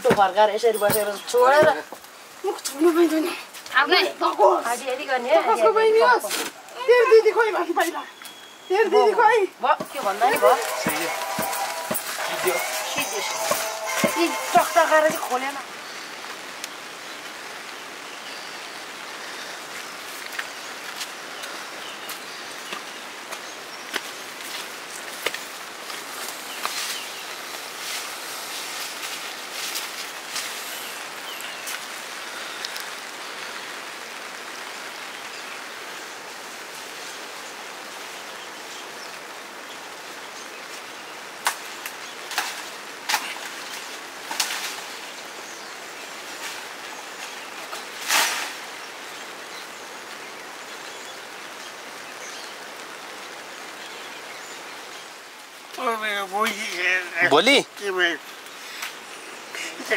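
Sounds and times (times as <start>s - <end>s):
hot oil sizzling: 10.0s - 15.6s.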